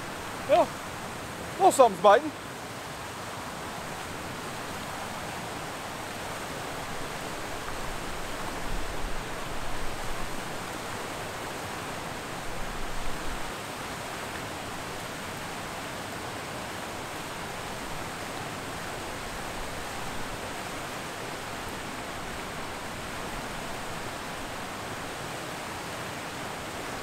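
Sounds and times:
water rushing over dam spillway: 0.0s - 27.0s.

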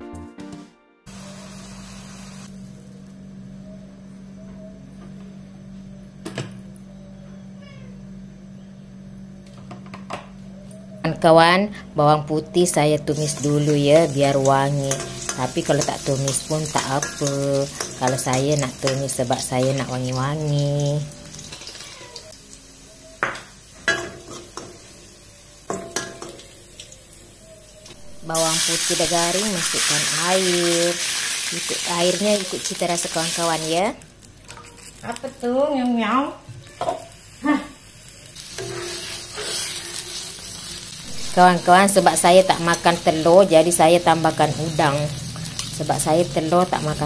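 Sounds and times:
garlic sizzling in oil: 1.1s - 3.1s, 13.1s - 27.1s, 27.8s - 47.0s
steady low hum: 1.1s - 21.4s
cat meow: 7.6s - 8.0s, 21.6s - 22.4s
metal utensil knocking wok: 13.4s - 19.8s, 25.7s - 26.4s, 38.5s - 40.1s.

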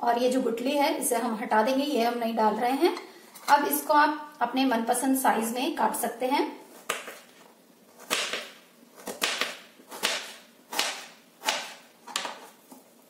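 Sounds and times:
knife cutting on plastic board: 6.8s - 12.9s.

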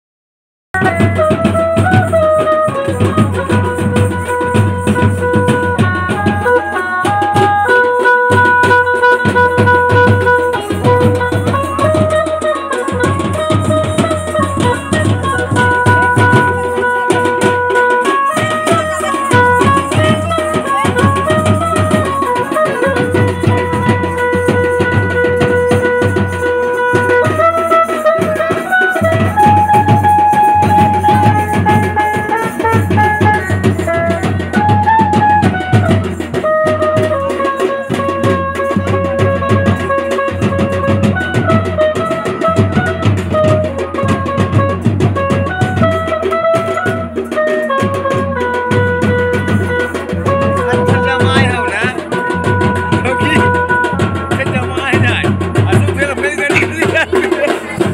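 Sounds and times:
drum and hand-drum beats: 0.7s - 57.9s
folk melody of long held notes: 0.8s - 57.9s.

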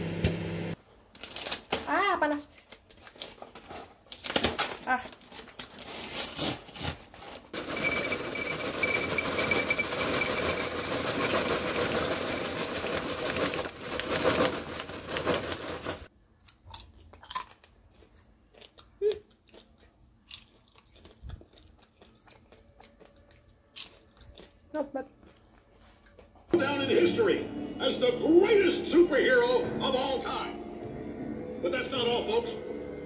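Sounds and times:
popcorn rattling into ceramic bowl: 7.6s - 16.1s.

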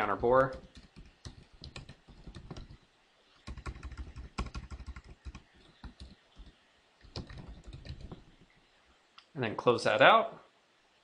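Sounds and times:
typing on keyboard: 0.1s - 2.8s, 3.4s - 8.4s.

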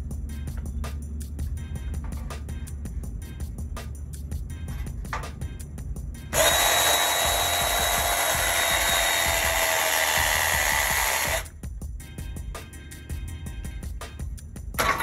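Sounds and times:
pipe press motor whine: 6.3s - 11.5s.

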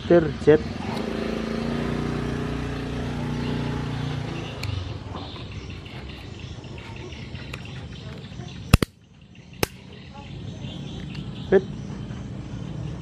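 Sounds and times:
vehicle engine hum: 0.0s - 13.0s
sharp plastic clicks: 8.7s - 9.0s, 9.6s - 9.8s.

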